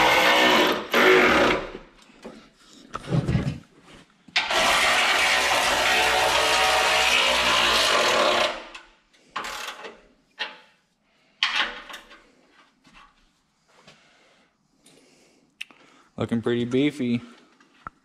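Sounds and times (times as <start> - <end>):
power tool cutting metal: 0.0 - 1.8, 4.4 - 8.8.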